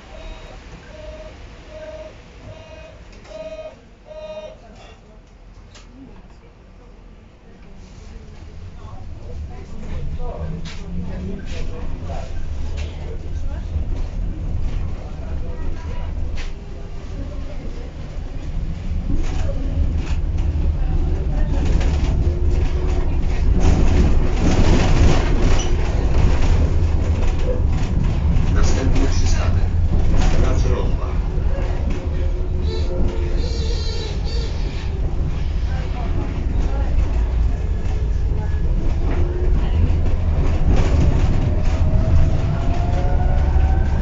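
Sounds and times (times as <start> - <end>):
tram wheels rumbling: 5.4 - 44.0
rattle and rush: 18.3 - 44.0.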